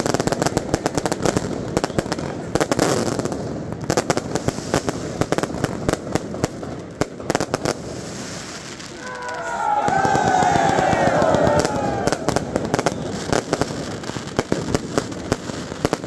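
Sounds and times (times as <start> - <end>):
firecrackers banging and crackling: 0.0 - 16.0
crowd voices: 8.9 - 13.4.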